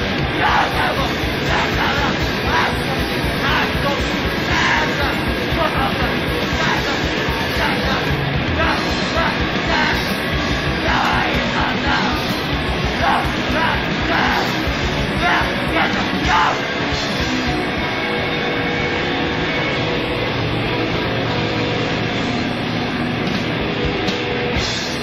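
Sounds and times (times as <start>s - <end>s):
fast drumming: 0.0s - 18.3s
distorted guitar and bass: 0.0s - 25.0s
harsh noise: 0.0s - 25.0s
person yelling vocals: 0.3s - 12.3s, 12.9s - 16.8s.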